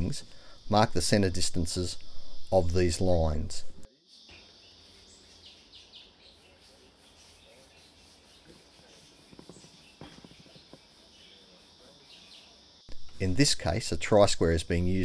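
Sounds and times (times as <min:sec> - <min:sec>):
steady high hiss: 0:00.0 - 0:15.0
faint bird chirps: 0:03.9 - 0:12.9.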